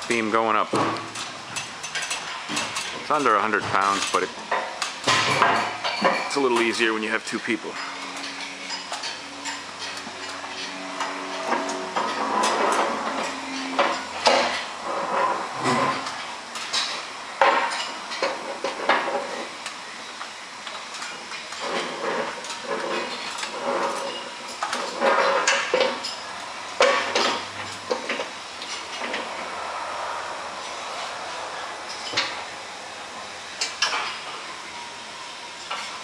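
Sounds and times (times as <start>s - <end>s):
metal beam clanking and scraping: 7.8s - 19.5s, 26.8s - 34.3s.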